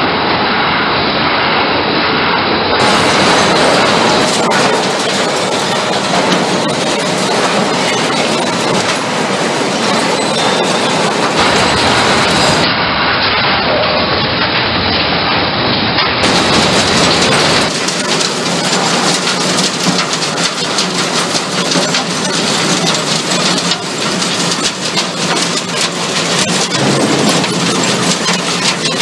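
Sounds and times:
low machine rumble: 0:02.7 - 0:14.9, 0:16.2 - 0:29.0
waste fragments rattling on screen: 0:02.8 - 0:12.7, 0:16.2 - 0:29.0.

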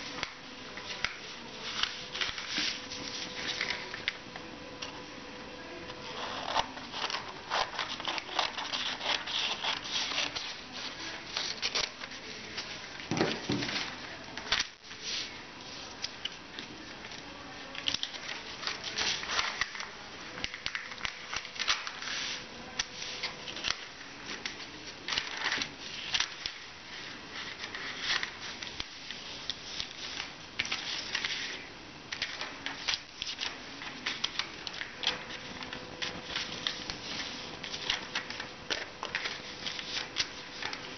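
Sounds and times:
paper rustling and crackling: 0:00.0 - 0:04.2, 0:06.0 - 0:40.9
scissors snipping paper: 0:06.1 - 0:12.5.

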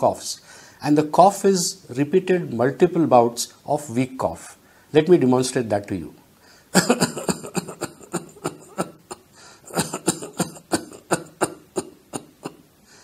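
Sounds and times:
man coughing rapidly: 0:06.7 - 0:12.7.

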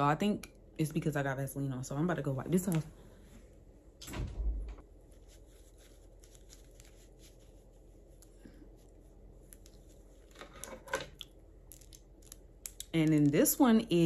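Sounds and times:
paper tissue rustling and crinkling: 0:04.8 - 0:10.8
tissue crackle: 0:05.0 - 0:10.6.

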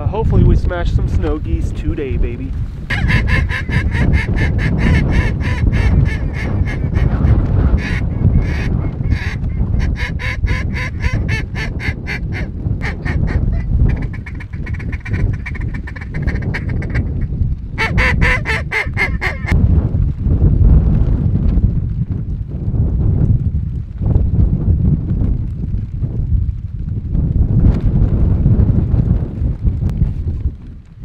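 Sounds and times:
wind rumble on microphone: 0:00.0 - 0:31.0
geese yelping calls: 0:02.9 - 0:17.2, 0:17.8 - 0:19.6.

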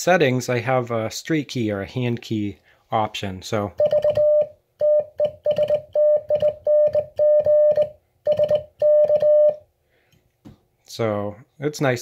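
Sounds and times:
morse code beeps: 0:03.8 - 0:09.6.

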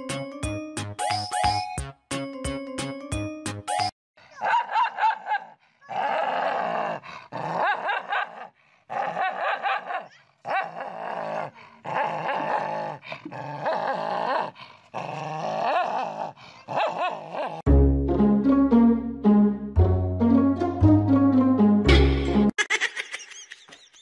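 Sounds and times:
dog growling and snarling: 0:05.8 - 0:17.7.

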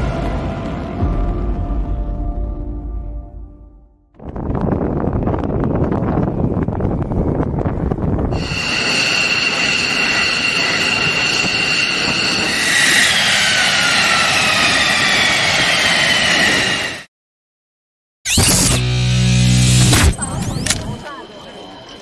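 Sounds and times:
low jet roar: 0:04.2 - 0:17.1
jet engine whine: 0:05.6 - 0:17.1.

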